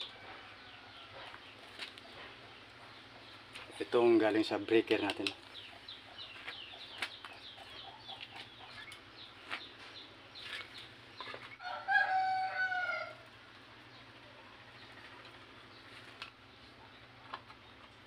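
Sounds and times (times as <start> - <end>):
rooster crowing: 0.0 - 1.3, 11.6 - 13.4.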